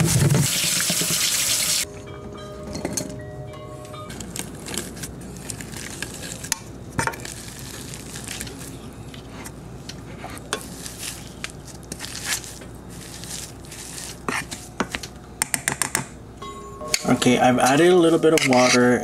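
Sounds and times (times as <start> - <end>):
potatoes squishing: 4.2 - 9.2, 10.6 - 15.0.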